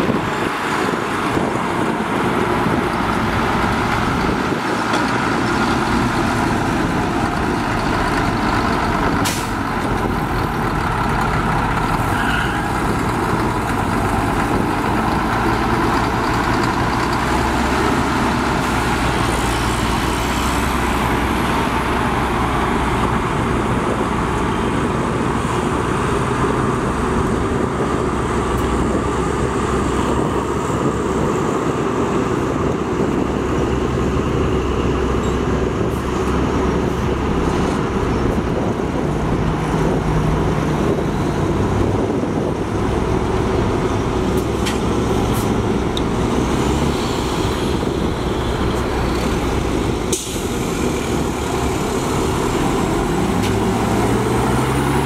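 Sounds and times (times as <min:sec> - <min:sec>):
diesel truck engine running: 0:00.0 - 0:55.0.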